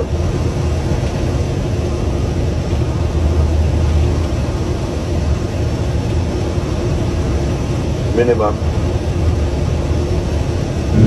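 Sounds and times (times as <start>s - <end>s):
airliner engine rumble: 0.0s - 11.0s.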